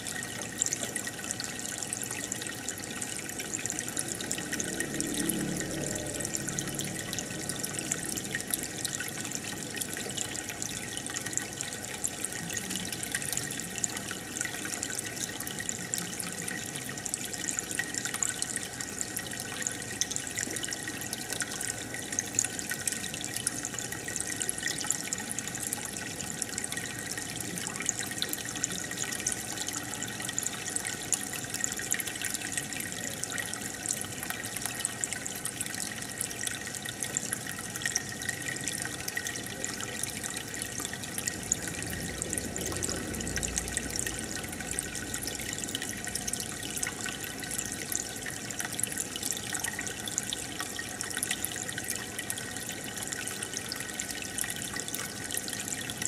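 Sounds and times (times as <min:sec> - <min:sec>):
aquarium water bubbling: 0:00.0 - 0:56.0
faint steady hum: 0:00.0 - 0:56.0.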